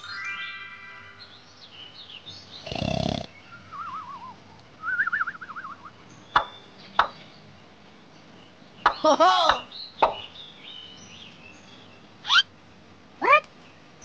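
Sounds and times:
young monkey crying and squealing: 12.2 - 12.5, 13.2 - 13.5.

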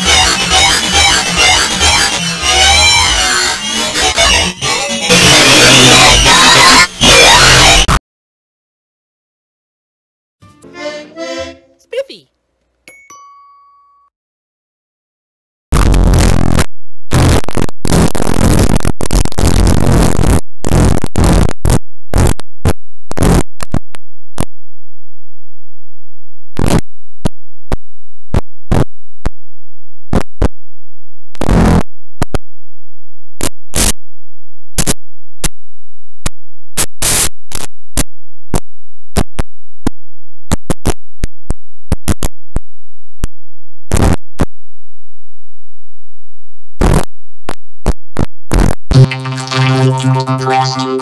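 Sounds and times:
distorted electronic noise bursts: 0.0 - 8.0, 15.8 - 22.4, 48.5 - 51.0.

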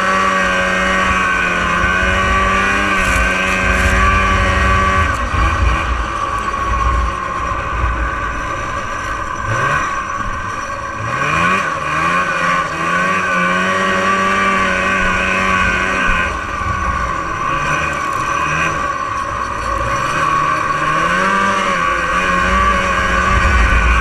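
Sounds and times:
two-stroke engine revving: 0.0 - 24.0.

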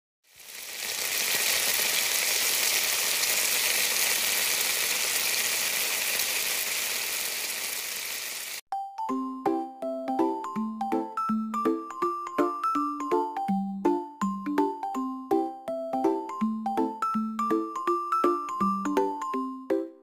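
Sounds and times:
meat sizzling in a pan: 0.3 - 8.6.

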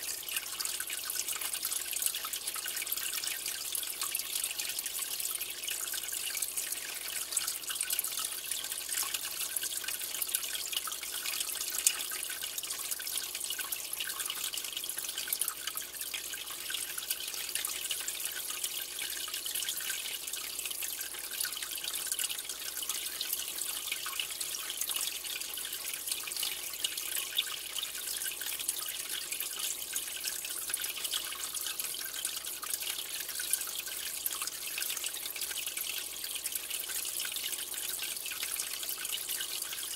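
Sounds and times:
aquarium water trickling and bubbling: 0.0 - 39.9.

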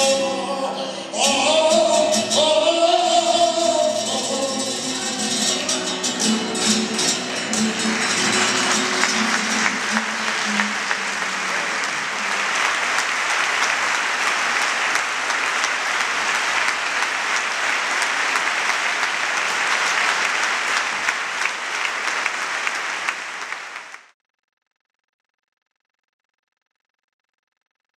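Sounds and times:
flamenco guitar: 0.0 - 13.4
audience applause: 4.6 - 24.1.

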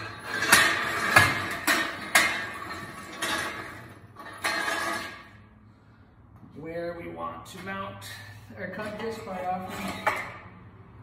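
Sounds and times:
metal parts clanking: 0.0 - 5.4, 8.8 - 10.4.

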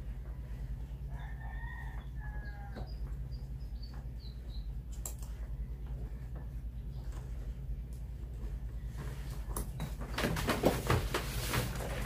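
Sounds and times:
steady low hum: 0.0 - 12.0
small birds chirping: 0.2 - 7.8
rooster crowing: 1.1 - 3.0.

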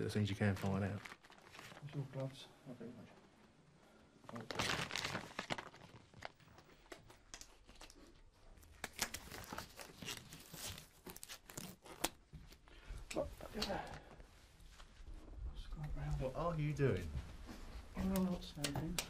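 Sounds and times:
gloves crinkling and rustling: 0.2 - 2.4, 4.2 - 15.4.

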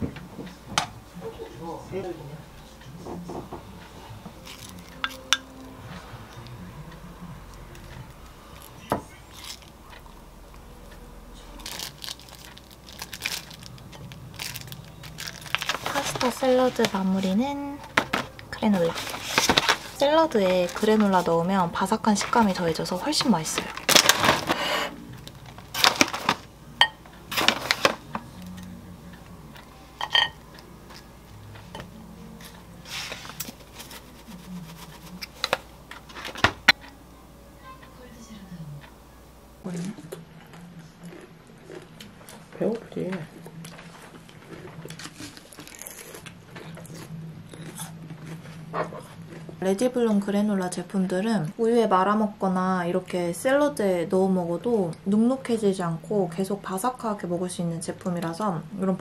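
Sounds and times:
plastic pouch crackling: 11.6 - 17.4, 22.2 - 24.6, 25.2 - 26.5.

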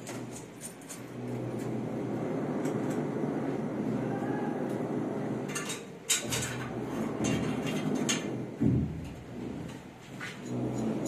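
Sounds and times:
sharp knocks and clatters: 5.5 - 11.0.

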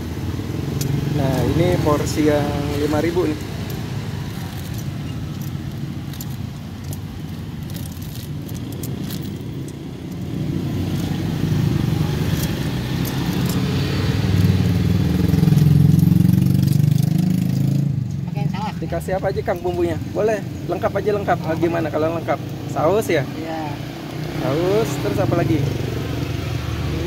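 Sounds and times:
plastic bag rustling: 2.6 - 9.6.

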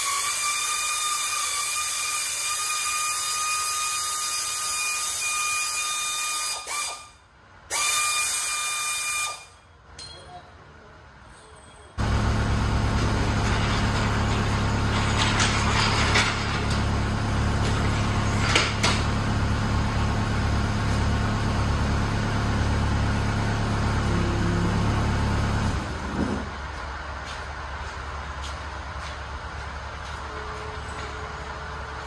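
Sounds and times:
sharp metallic clanks: 9.9 - 10.5
engine running steadily: 12.0 - 32.0.

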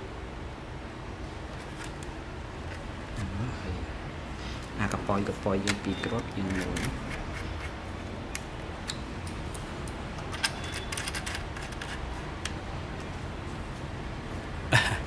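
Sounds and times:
steady low hum: 0.0 - 15.0
small parts clicking and tapping: 5.6 - 13.1.

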